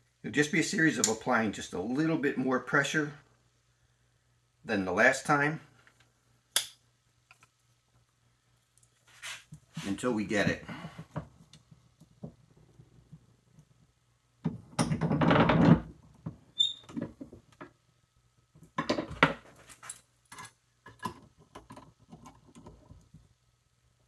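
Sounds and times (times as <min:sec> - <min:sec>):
high squeak: 0:16.6 - 0:16.9.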